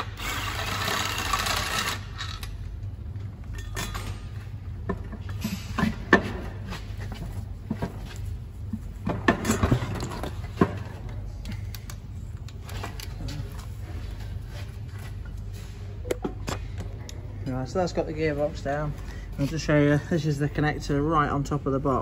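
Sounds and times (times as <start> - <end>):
power tool running: 0.0 - 2.5
steady low hum: 0.0 - 22.0.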